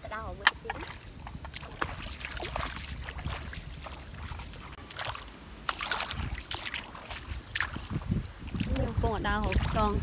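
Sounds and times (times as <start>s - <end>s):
bare feet splashing in muddy water: 0.0s - 10.0s.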